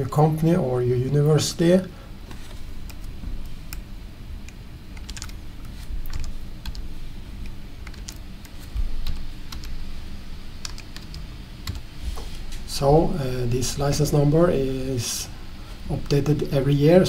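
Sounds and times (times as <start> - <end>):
keyboard typing: 2.3 - 9.8, 10.6 - 11.8.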